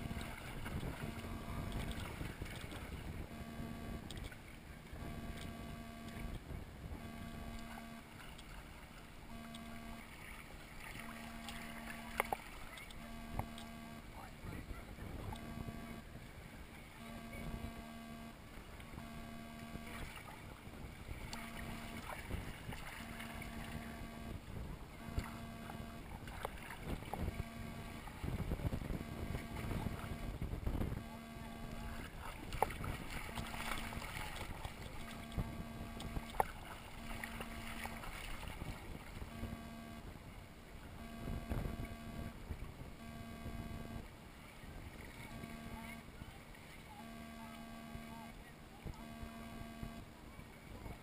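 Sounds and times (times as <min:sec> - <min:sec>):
clicks: 0:05.0 - 0:06.4, 0:07.2 - 0:07.8, 0:11.1 - 0:14.1
faint voices: 0:09.5 - 0:51.0
water sloshing against inflatable tube: 0:18.4 - 0:40.1
small splashes: 0:25.0 - 0:28.4, 0:31.1 - 0:40.0.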